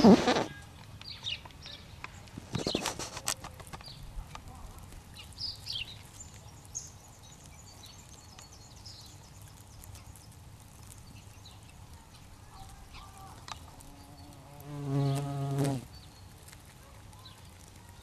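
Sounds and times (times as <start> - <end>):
bumblebee wingbeat buzz: 14.2 - 15.9.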